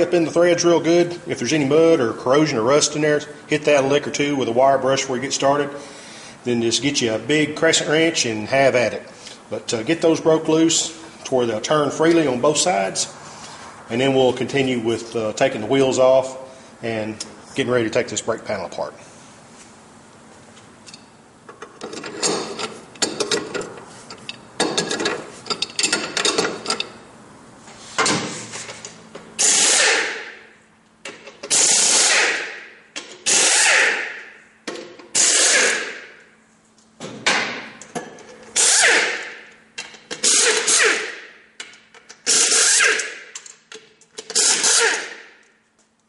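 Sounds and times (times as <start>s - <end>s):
tools rattling: 20.9s - 27.0s
air impact wrench bursts: 29.4s - 30.5s, 31.4s - 34.4s, 35.1s - 36.2s, 38.6s - 39.5s, 40.1s - 41.4s, 42.2s - 43.3s, 44.2s - 45.4s.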